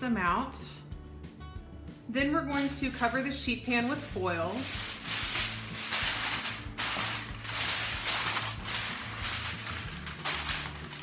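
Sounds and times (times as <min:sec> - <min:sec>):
aluminium foil crinkling: 0:02.5 - 0:11.0.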